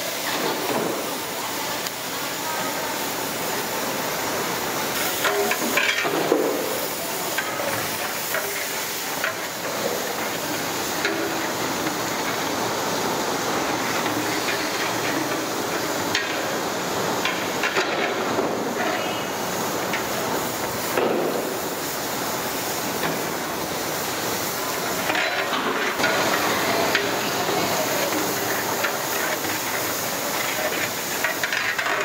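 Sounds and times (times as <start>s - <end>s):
water boiling hard: 0.0s - 32.0s.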